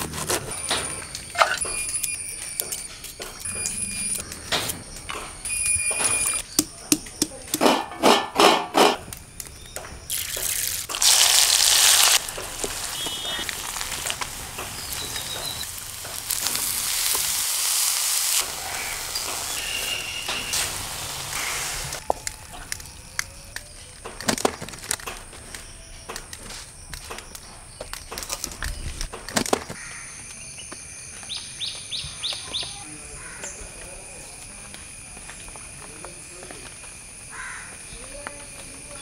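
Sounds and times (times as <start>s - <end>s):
pounding in a steel bowl: 6.4s - 9.0s
food sizzling in hot oil: 10.1s - 22.1s.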